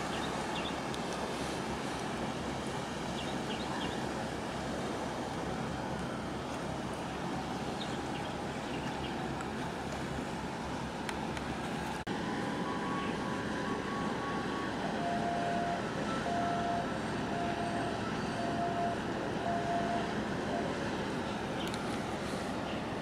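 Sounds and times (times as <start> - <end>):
harbour noise: 0.0 - 23.0
ship engine rumble: 0.0 - 23.0
wind: 0.0 - 23.0
short steady beep: 13.9 - 20.7.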